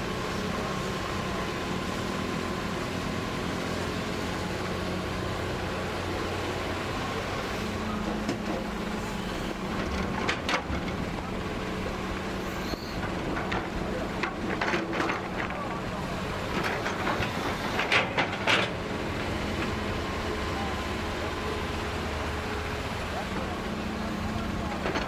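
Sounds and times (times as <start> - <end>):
excavator diesel engine running: 0.0 - 25.0
soil and rock rattling: 7.7 - 25.0.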